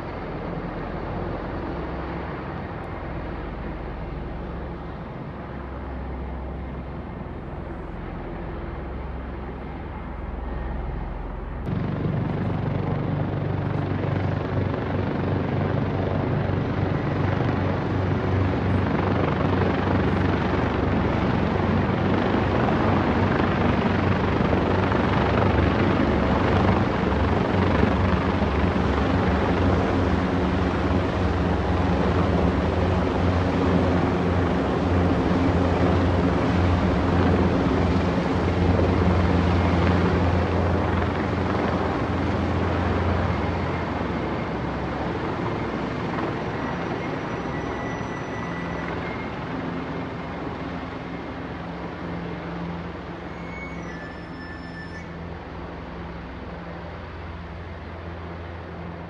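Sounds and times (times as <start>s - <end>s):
helicopters flying overhead: 0.0s - 59.0s.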